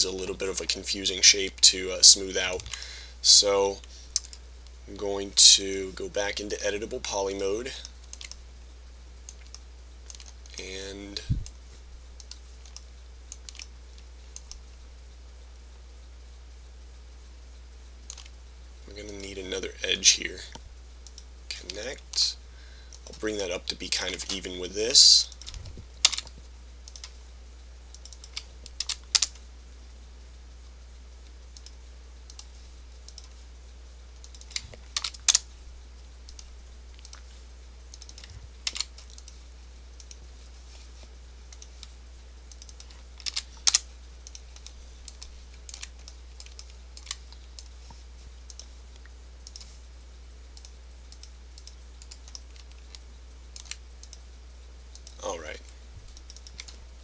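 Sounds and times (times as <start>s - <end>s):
low steady hum: 0.0s - 57.0s
keyboard and mouse clicks: 8.0s - 8.4s, 12.2s - 13.7s, 18.1s - 18.4s, 26.9s - 27.1s, 37.9s - 39.4s, 42.5s - 47.7s, 48.5s - 49.8s, 50.6s - 53.0s, 53.6s - 54.2s, 56.1s - 56.8s.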